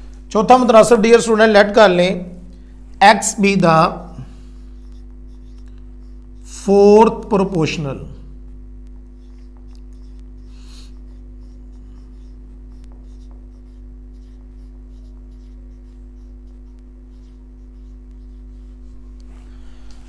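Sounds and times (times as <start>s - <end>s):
steady low hum: 0.0s - 20.0s
marker writing on whiteboard: 4.2s - 7.7s, 8.4s - 19.6s.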